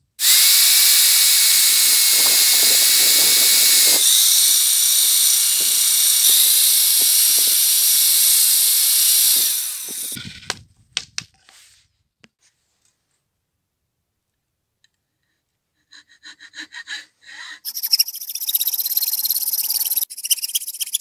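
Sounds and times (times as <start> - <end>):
abrasive hissing on wood: 0.2 - 10.2
drill motor whine: 0.2 - 10.2, 17.7 - 21.0.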